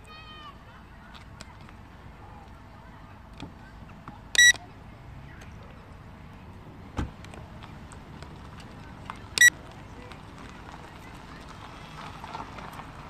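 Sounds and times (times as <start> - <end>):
high-pitched electronic beeps: 4.4 - 4.6.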